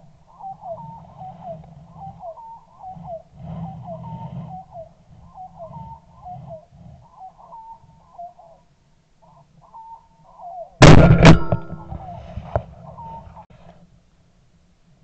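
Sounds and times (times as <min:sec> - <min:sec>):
partridge calling: 0:00.3 - 0:08.6, 0:09.2 - 0:10.8
loud gunshots: 0:10.8 - 0:12.1.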